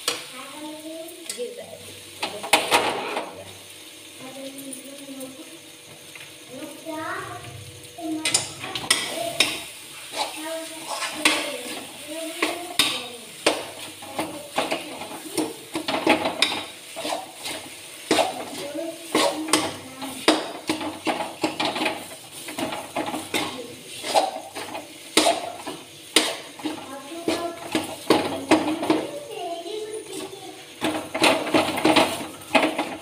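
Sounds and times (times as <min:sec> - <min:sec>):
metal spoon scraping a pan: 0:08.2 - 0:29.2.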